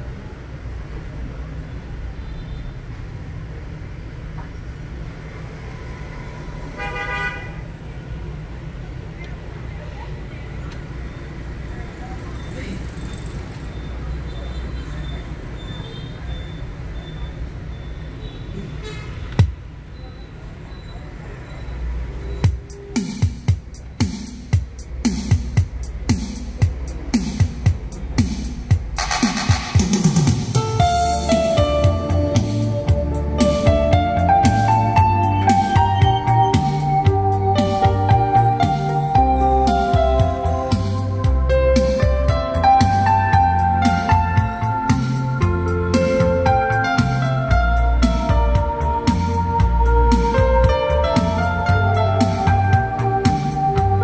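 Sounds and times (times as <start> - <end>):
traffic rumble: 0.0 - 54.0
vehicle horn toot: 6.7 - 7.7, 18.2 - 19.4
deep kick drum beat: 22.4 - 54.0.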